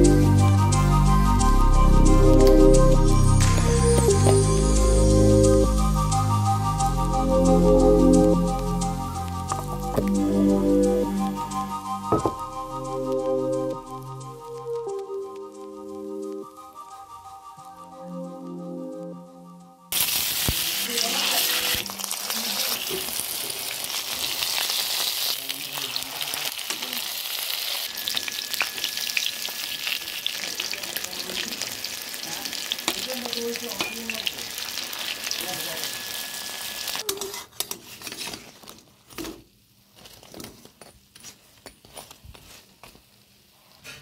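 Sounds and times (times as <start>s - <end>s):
fritters sizzling in hot oil: 19.9s - 37.0s.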